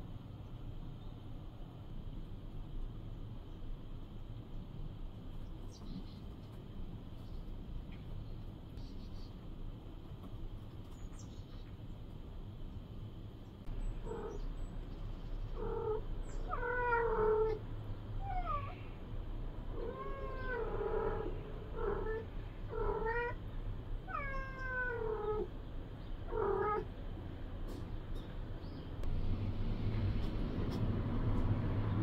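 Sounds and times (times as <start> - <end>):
cat meowing: 15.6 - 17.6, 18.2 - 18.9, 19.7 - 23.4, 24.0 - 25.5, 26.3 - 26.9.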